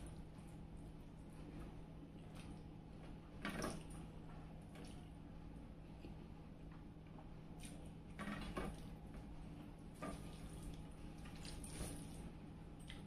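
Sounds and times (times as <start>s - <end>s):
wet eating sounds: 0.0s - 2.8s, 7.5s - 9.0s, 9.9s - 13.0s
steady low hum: 0.0s - 13.0s.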